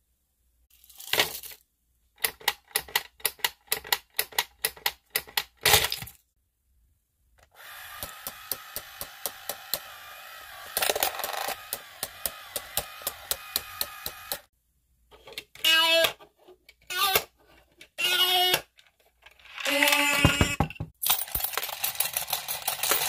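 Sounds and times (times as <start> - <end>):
candies poured into plastic tray: 0.7 - 1.6
small motor whirring and ticking: 7.6 - 14.5
candy rattle: 21.0 - 23.0.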